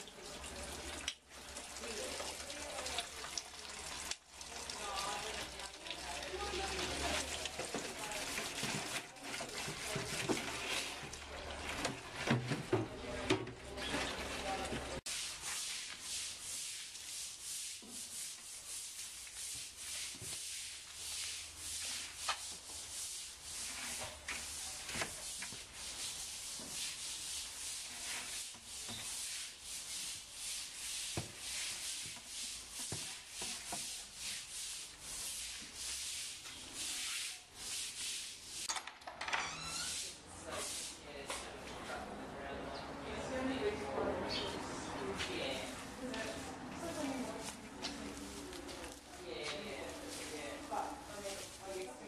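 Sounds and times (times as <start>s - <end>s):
scratchy scraping strokes: 13.8s - 38.7s, 39.7s - 41.0s, 45.2s - 52.0s.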